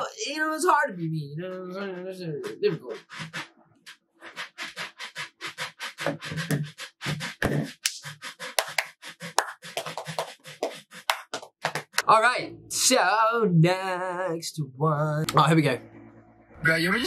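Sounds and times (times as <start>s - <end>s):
person beatboxing: 1.5s - 3.4s, 4.3s - 12.0s.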